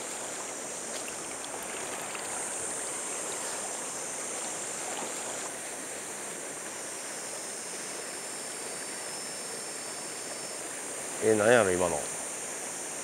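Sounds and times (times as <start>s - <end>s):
river rushing over stones: 0.0s - 6.1s.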